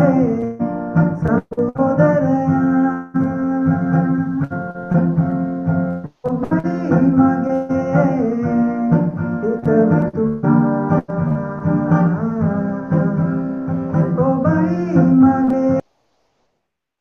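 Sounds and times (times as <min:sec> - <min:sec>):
keyboard music with held notes: 0:02.0 - 0:15.7.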